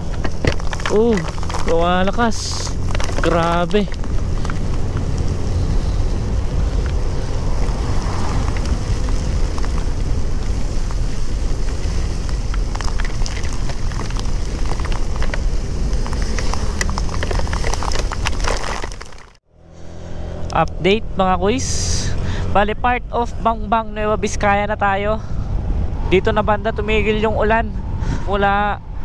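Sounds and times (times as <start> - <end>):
wind rushing over microphone: 0.0 - 19.1, 20.2 - 29.0
raindrops ticking on microphone: 6.7 - 19.4.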